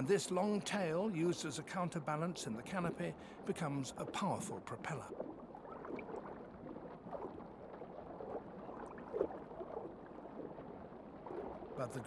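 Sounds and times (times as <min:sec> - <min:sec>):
underwater gurgling and bubbling: 0:02.7 - 0:11.8.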